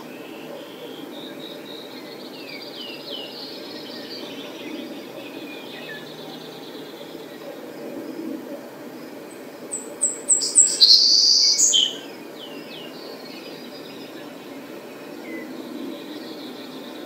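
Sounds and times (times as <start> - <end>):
sparrow singing: 9.3 - 17.0.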